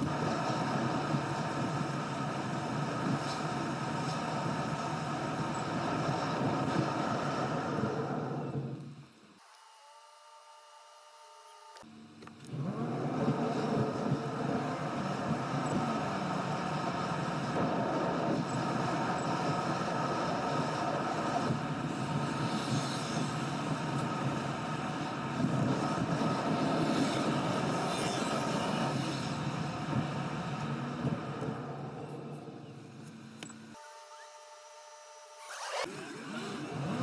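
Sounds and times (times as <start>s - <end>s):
car road and engine noise: 0.0s - 9.0s, 12.2s - 33.5s.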